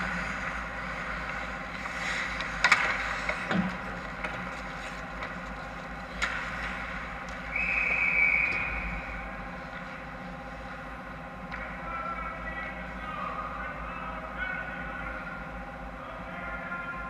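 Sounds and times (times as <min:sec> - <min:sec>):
skate scraping ice: 0:00.0 - 0:07.1
background hum: 0:00.0 - 0:17.0
hockey stick hitting puck: 0:02.4 - 0:04.6.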